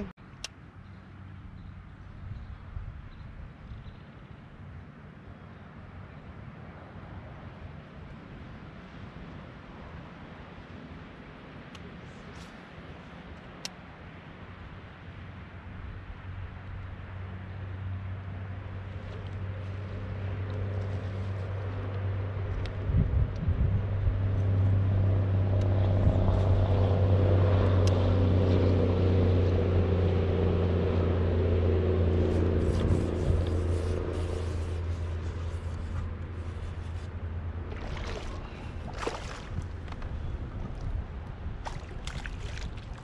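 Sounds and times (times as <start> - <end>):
engine humming: 16.7 - 43.0
fish splashing in water: 37.5 - 43.0.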